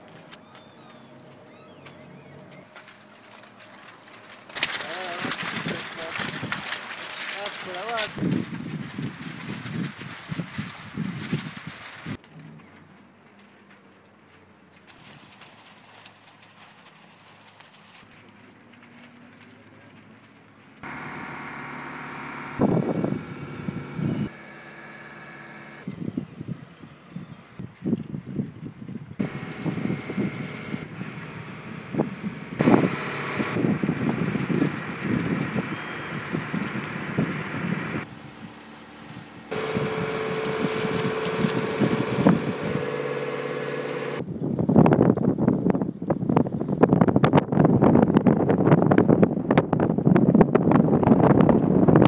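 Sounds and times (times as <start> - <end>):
engine humming: 0.0 - 17.0, 18.1 - 26.1, 29.2 - 44.3
wind on microphone: 7.9 - 12.8, 22.6 - 24.3, 25.8 - 43.0, 44.1 - 52.0
loud low rumbles: 29.2 - 38.4.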